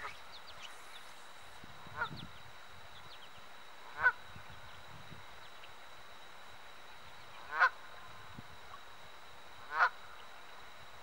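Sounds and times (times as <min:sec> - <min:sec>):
goose honking: 0:09.7 - 0:10.0.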